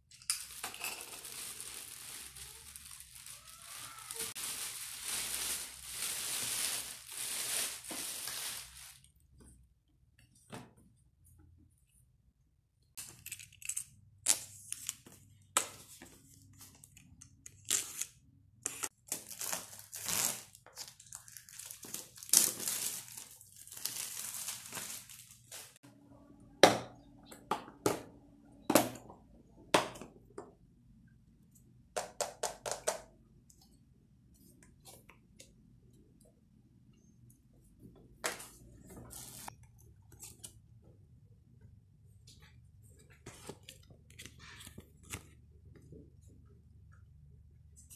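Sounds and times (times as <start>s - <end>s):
plastic bag crinkling: 0.3s - 9.1s, 19.4s - 25.8s.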